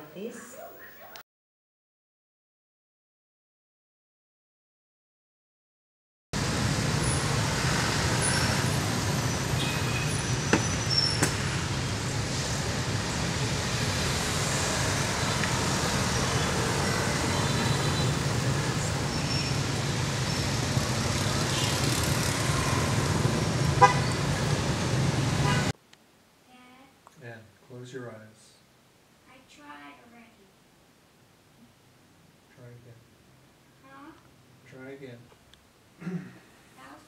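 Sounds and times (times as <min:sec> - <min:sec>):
rumble of passing vehicles: 0:06.4 - 0:25.7
short car horn toots: 0:23.8 - 0:24.2.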